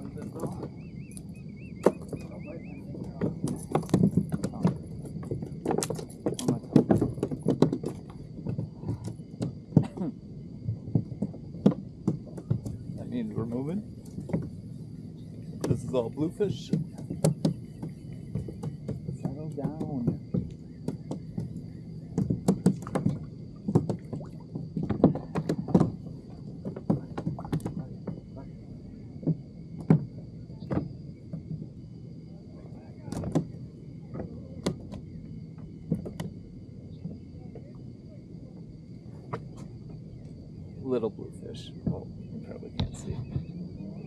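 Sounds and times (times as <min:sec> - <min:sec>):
fish flapping against kayak: 0:00.0 - 0:40.8
faint high whine: 0:00.0 - 0:44.0.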